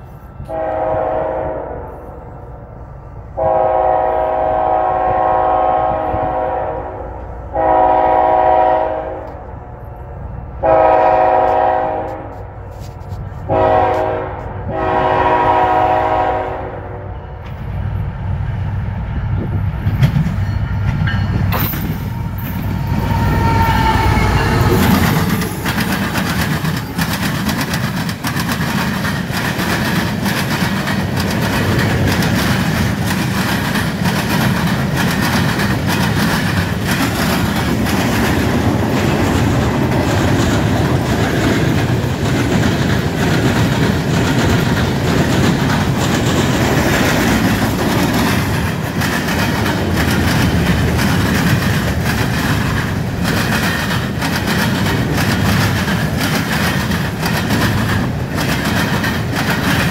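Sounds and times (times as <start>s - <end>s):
train rumbling past: 0.0s - 59.9s
locomotive air horn blasts: 0.4s - 2.2s, 3.4s - 9.5s, 10.6s - 12.6s, 13.4s - 17.2s, 22.9s - 25.0s
wheels clicking over track crossing: 24.0s - 59.9s.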